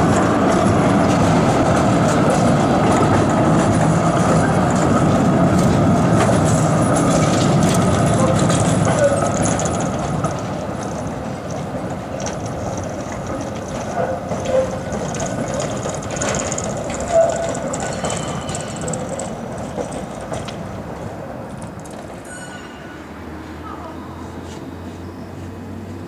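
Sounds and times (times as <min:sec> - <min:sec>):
tram wheels on rails: 0:00.0 - 0:26.0
wheel squeals and clicks: 0:13.8 - 0:19.3.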